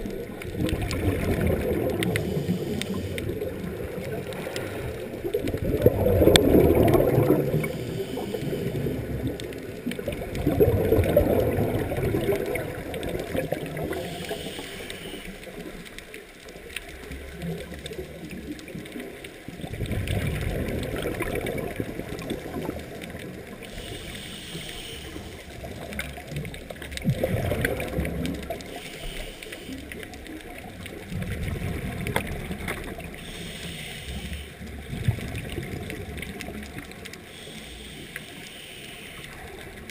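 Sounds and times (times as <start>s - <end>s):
exhaled bubbles gurgling: 0.0s - 39.9s
regulator inhalation hiss: 2.1s - 3.4s, 7.6s - 9.1s, 13.9s - 15.5s, 23.6s - 25.6s, 28.7s - 29.9s, 33.2s - 34.6s, 37.3s - 39.4s.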